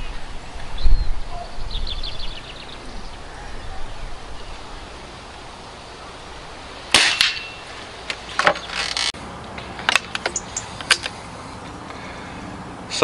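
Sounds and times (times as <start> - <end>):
air rifle shot: 6.9 - 7.6
rifle handling clicks and clatter: 8.0 - 11.2.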